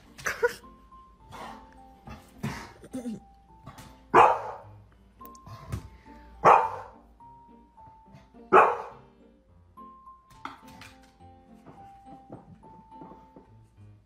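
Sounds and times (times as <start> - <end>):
background music sustained notes: 0.0 - 14.0
large dog barking: 4.1 - 4.6, 6.4 - 7.0, 8.5 - 9.0.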